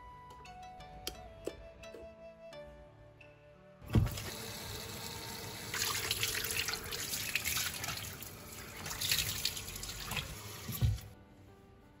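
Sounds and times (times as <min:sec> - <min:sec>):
tap running into sink: 0:08.8 - 0:11.1.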